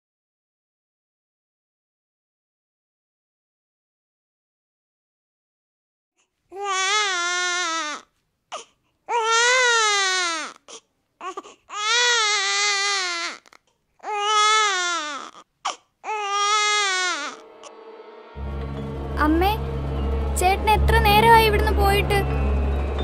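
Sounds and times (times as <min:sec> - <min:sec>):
newborn baby crying: 0:06.5 - 0:17.5
baby catching breaths: 0:08.5 - 0:09.0, 0:10.6 - 0:11.7.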